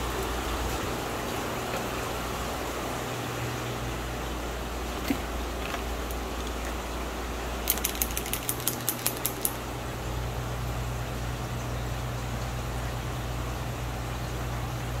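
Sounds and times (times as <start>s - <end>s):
steady low hum: 0.0s - 15.0s
ratchet clicking: 7.7s - 9.6s.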